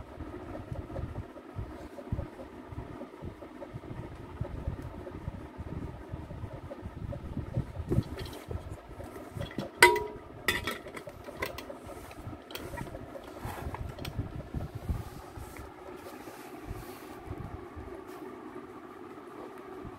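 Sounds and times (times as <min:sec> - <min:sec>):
low background rumble: 0:00.0 - 0:19.9
metal pot lid clinking: 0:09.4 - 0:11.0.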